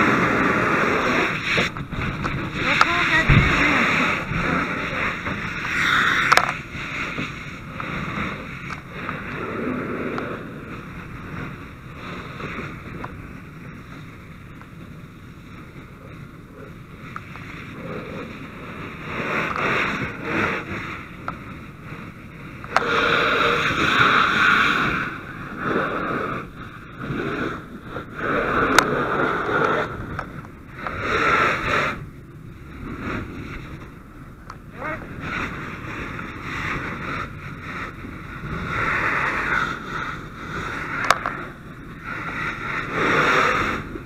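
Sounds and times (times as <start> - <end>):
hose spraying water: 0.0 - 10.8, 22.7 - 26.4.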